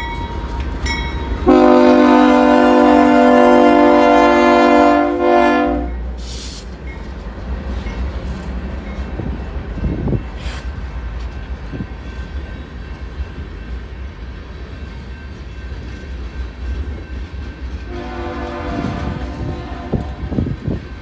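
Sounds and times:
train cars rumbling past: 0:00.0 - 0:21.0
train air horn: 0:01.4 - 0:06.6, 0:17.9 - 0:20.4.

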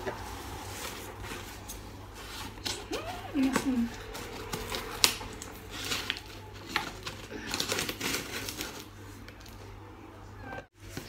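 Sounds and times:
scissors scraping packing tape: 0:02.4 - 0:08.9.

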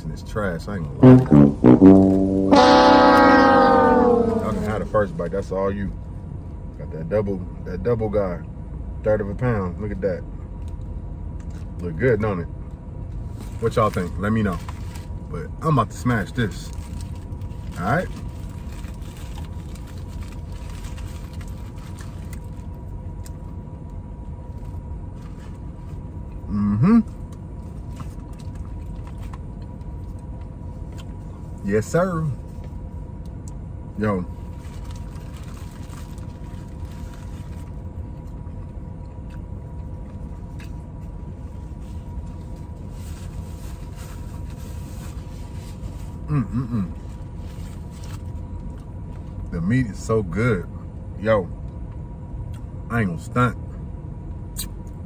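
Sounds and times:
car engine running: 0:00.0 - 0:07.4.

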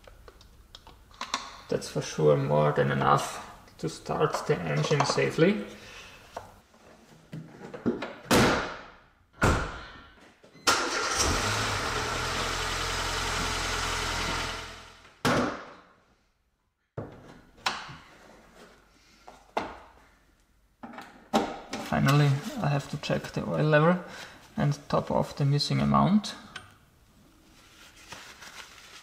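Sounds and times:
car engine starting and idling: 0:10.7 - 0:15.2.

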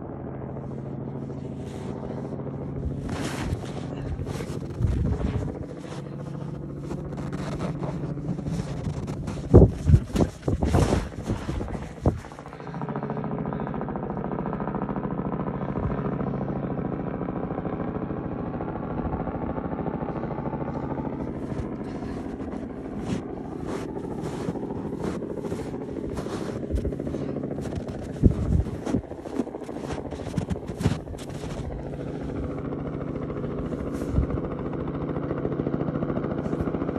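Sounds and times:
helicopter rotor and engine drone: 0:00.0 - 0:36.9
wind gusts on microphone: 0:27.8 - 0:29.3.

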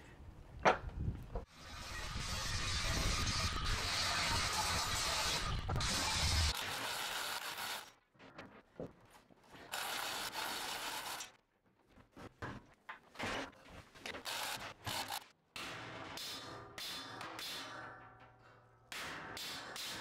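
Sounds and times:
angle grinder cutting steel: 0:01.5 - 0:07.9, 0:09.7 - 0:11.3.

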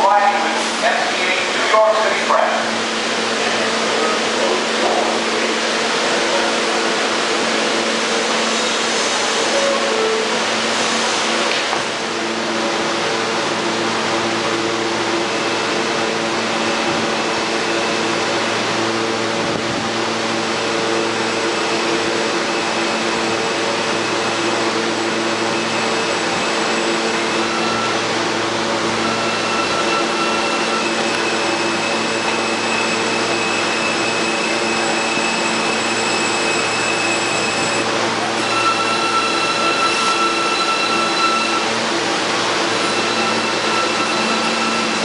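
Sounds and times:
subway train hum and hiss: 0:00.0 - 0:45.0
train whining tones: 0:00.0 - 0:45.0.

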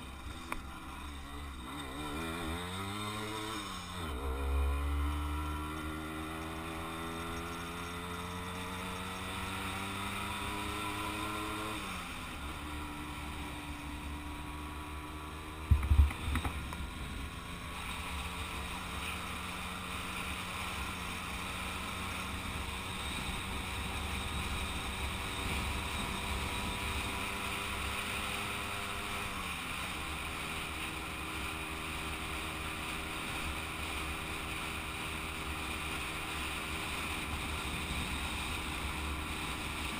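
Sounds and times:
moped engine running: 0:00.0 - 0:39.9
wind rumble on microphone: 0:15.6 - 0:17.2
loud thump: 0:15.7 - 0:16.6.

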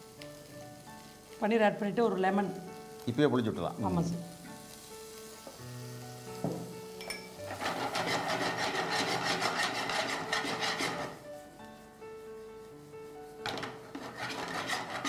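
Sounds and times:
background music: 0:00.0 - 0:15.0
metal spatula scraping frying pan: 0:07.1 - 0:11.3, 0:13.4 - 0:15.0.

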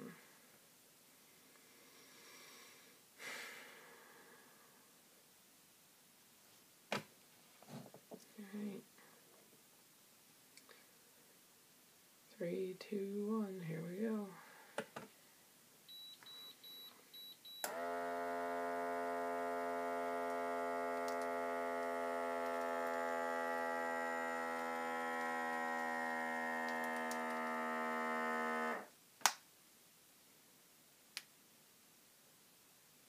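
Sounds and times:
short high beeps: 0:15.9 - 0:17.7
pump motor humming: 0:17.7 - 0:28.9.

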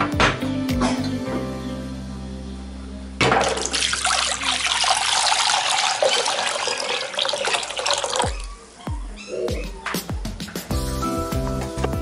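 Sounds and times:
water pouring into metal pot: 0:03.4 - 0:08.4.

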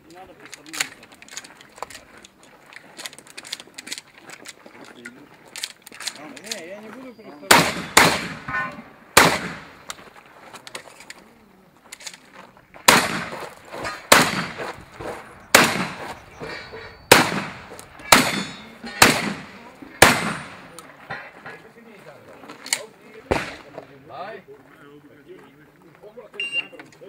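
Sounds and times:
shotgun shots with echo: 0:07.5 - 0:09.9, 0:12.8 - 0:21.1, 0:23.2 - 0:23.8.

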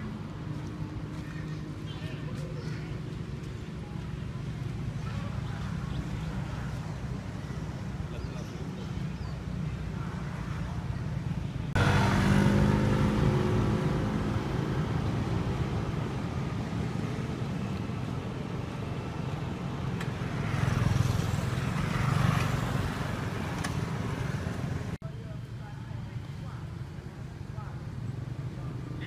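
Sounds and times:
vehicle engine passing: 0:11.7 - 0:25.0.

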